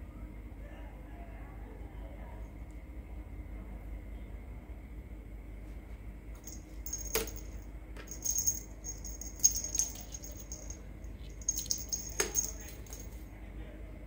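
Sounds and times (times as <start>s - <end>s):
small jingle bell jingling: 6.4s - 13.2s.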